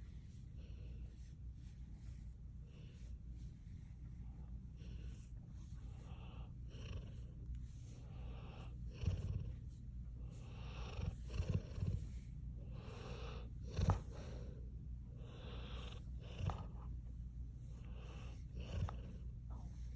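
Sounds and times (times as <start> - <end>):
dog snoring: 8.0 - 9.6, 10.3 - 14.6, 15.2 - 16.9, 17.8 - 19.6.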